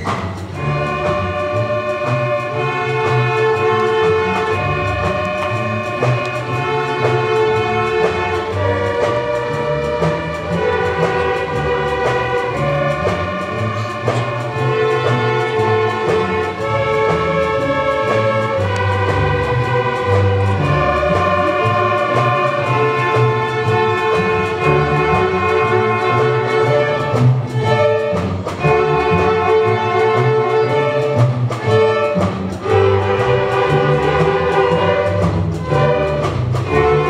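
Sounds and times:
string orchestra playing: 0.0s - 37.0s.

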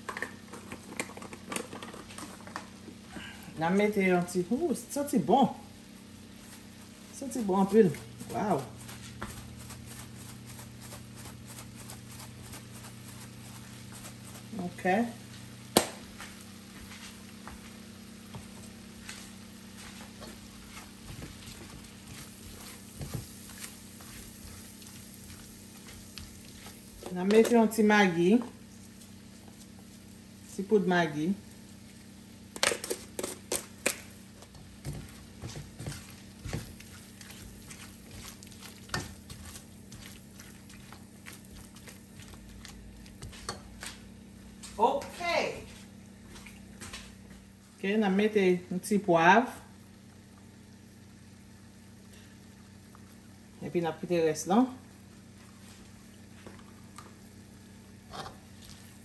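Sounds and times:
steady low hum: 0.0s - 59.0s
spoon stirring in a pot: 19.9s - 30.0s, 32.6s - 44.0s, 57.9s - 59.0s.

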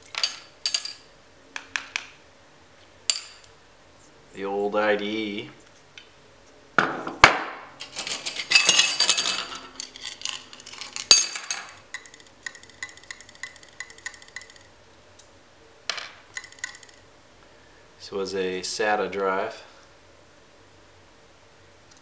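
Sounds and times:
metal parts clinking and knocking: 0.0s - 2.0s, 7.8s - 14.7s, 15.9s - 17.0s.

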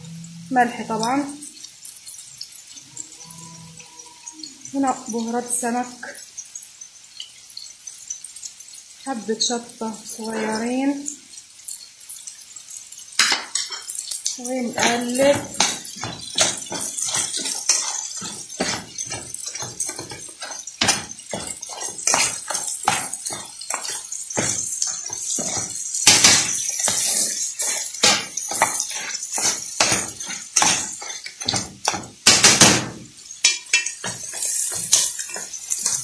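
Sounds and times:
metal tongs clicking on pan and shells: 11.6s - 36.0s.

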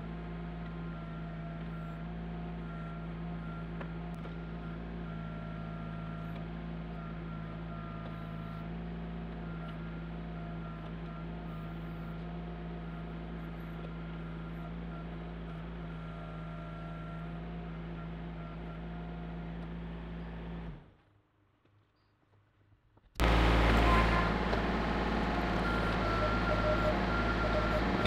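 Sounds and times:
diesel engine running: 0.0s - 21.0s, 23.2s - 28.0s
hydraulic whine: 23.2s - 28.0s.

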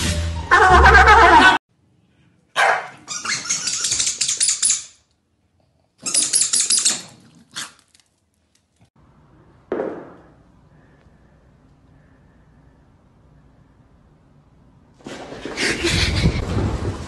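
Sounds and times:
dog yap: 2.6s - 4.5s.

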